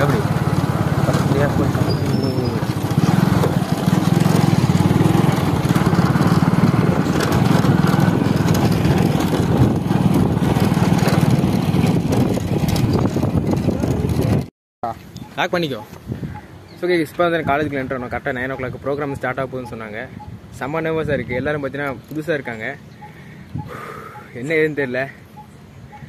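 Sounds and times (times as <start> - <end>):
motorcycle engine running: 0.0 - 14.5.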